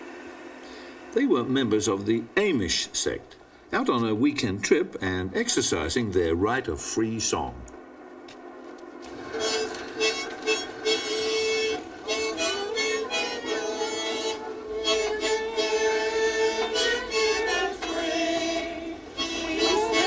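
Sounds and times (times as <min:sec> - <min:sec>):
harmonica playing a tune: 0:09.2 - 0:20.0.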